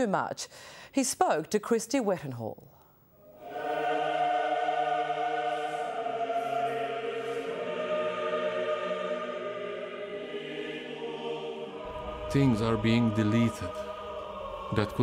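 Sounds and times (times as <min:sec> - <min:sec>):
choir singing long chords: 0:03.2 - 0:15.0.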